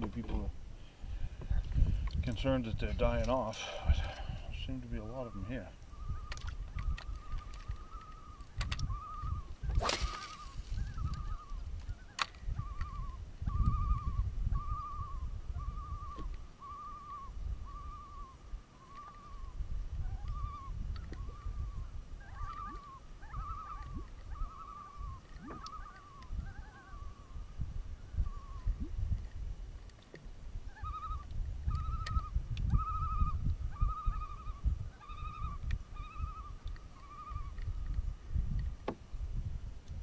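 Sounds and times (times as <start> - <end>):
fishing reel squeaking: 5.2 - 15.1, 18.8 - 19.4, 22.2 - 27.0.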